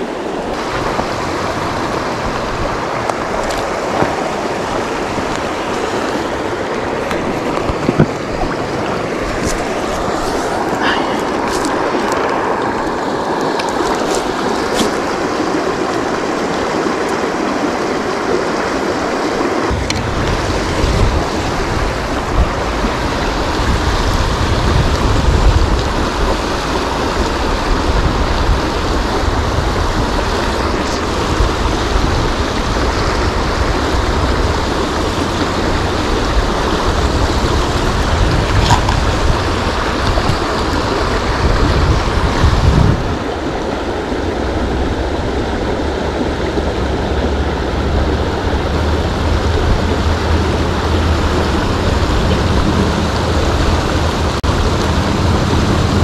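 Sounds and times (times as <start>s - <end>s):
river water rushing: 0.0s - 56.0s
low rumble: 19.7s - 26.4s.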